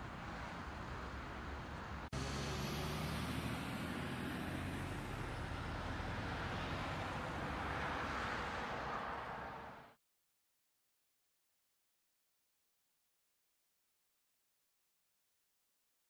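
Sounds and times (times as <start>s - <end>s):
vehicle rumble: 0.0s - 10.0s.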